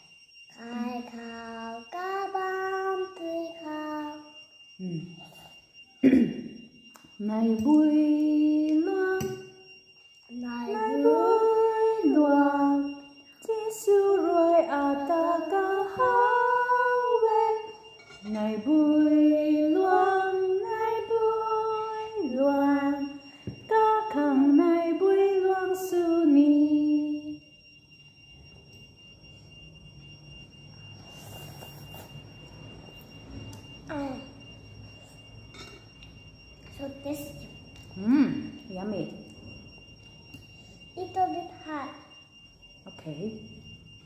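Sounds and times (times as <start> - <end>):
woman singing: 7.2 - 9.4, 10.3 - 17.6, 18.2 - 23.1, 23.7 - 27.4.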